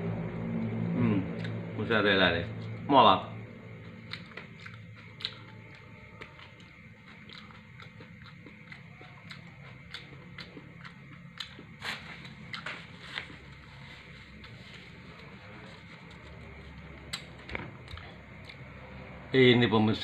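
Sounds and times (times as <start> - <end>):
person chewing with mouth clicks: 3.8 - 12.7.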